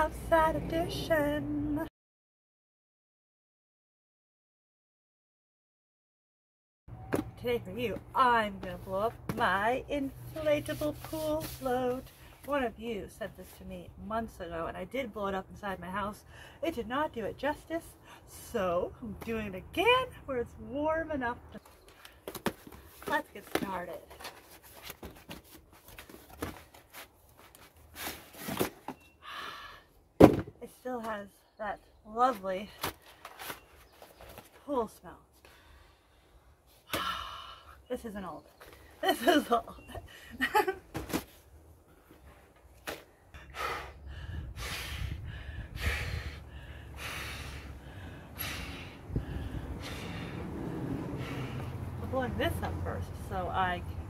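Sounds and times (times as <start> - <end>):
vinyl float rustling: 8.5 - 12.6, 21.7 - 28.9.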